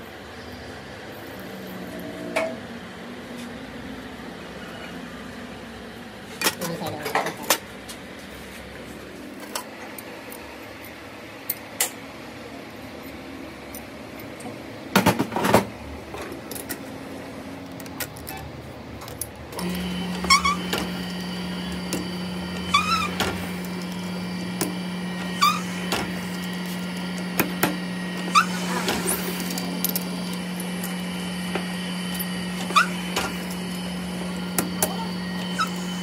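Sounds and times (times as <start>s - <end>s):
machine humming: 15.8s - 36.0s
short high squeaks: 20.2s - 21.0s, 22.6s - 23.5s, 25.2s - 25.9s, 28.2s - 29.5s, 32.6s - 33.4s, 34.9s - 36.0s.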